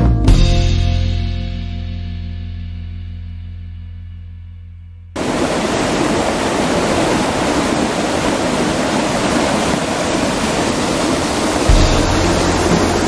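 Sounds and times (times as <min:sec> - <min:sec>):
water rushing over rocks: 0:05.2 - 0:13.0.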